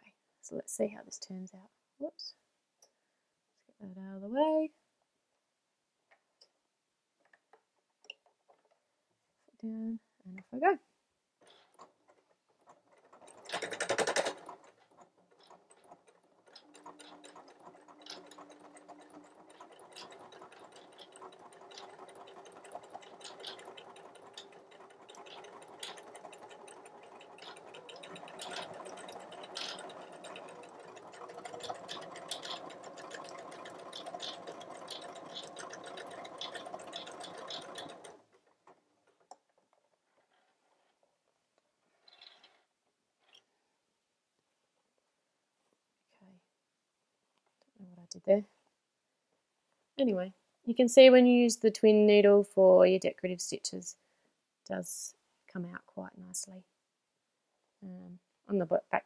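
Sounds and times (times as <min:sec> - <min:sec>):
sewing machine stitching: 0:11.4 - 0:41.0, 0:42.0 - 0:43.3.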